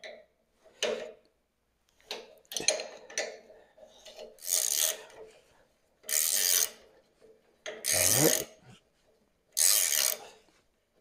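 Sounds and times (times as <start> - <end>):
wrench rasping on nut: 4.1 - 5.1, 6.1 - 6.8, 7.8 - 8.5, 9.6 - 10.2.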